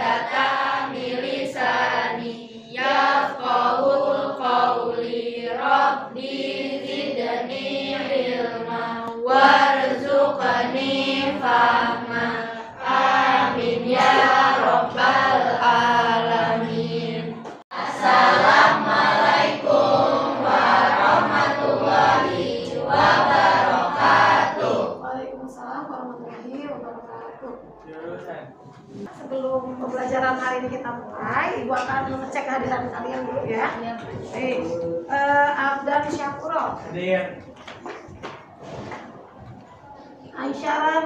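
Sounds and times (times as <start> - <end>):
children chanting in unison: 0.0 - 25.6.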